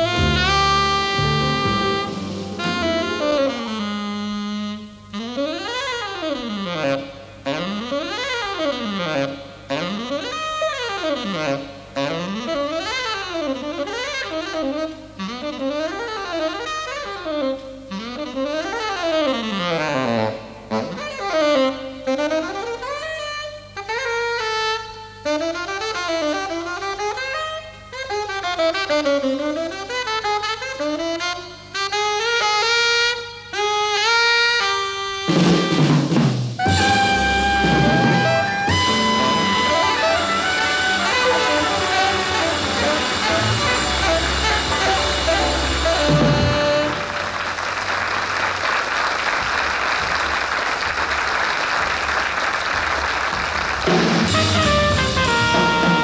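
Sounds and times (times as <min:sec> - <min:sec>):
drum kit crash: 0:00.0 - 0:04.2, 0:35.3 - 0:47.5, 0:53.3 - 0:56.0
horn sustained note: 0:00.0 - 0:23.0, 0:36.6 - 0:48.0, 0:54.2 - 0:56.0
jazz saxophone solo: 0:00.0 - 0:50.9, 0:52.1 - 0:56.0.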